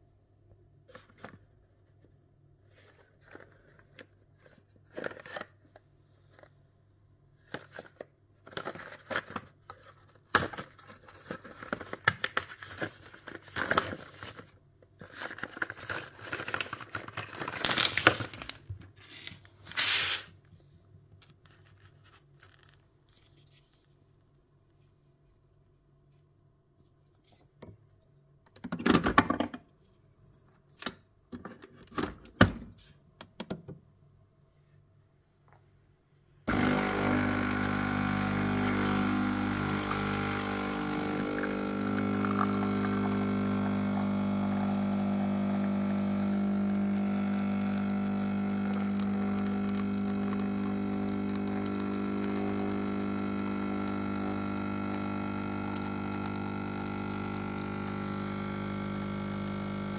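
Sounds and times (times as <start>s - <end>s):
coffee machine pump humming: 36.5s - 59.9s.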